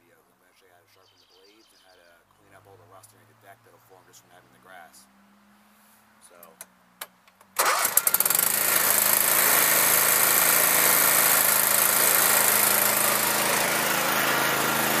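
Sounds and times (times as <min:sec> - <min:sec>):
lawn tractor engine starting: 0:07.4 - 0:15.0.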